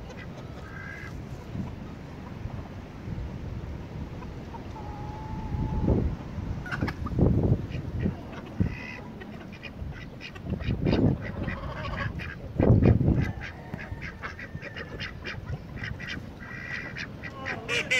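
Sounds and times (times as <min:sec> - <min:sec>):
ducks quacking: 0:00.0 - 0:01.8, 0:06.6 - 0:17.9
chickens clucking: 0:00.0 - 0:02.7, 0:04.0 - 0:17.9.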